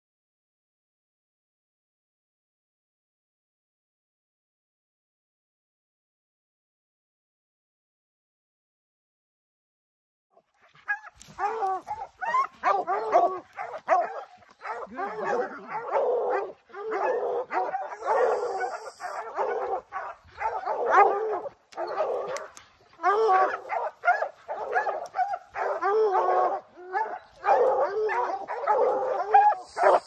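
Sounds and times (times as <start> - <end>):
hounds baying and barking: 10.4 - 30.0.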